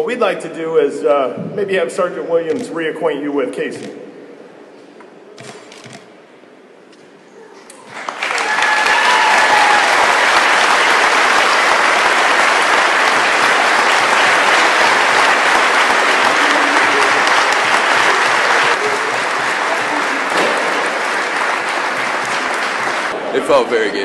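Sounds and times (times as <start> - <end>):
audience applauding: 7.8 - 23.2.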